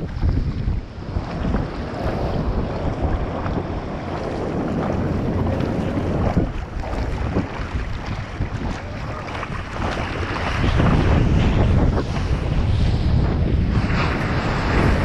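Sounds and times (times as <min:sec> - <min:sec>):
seawater sloshing and splashing: 0:00.0 - 0:15.0
wind buffeting microphone: 0:00.0 - 0:15.0.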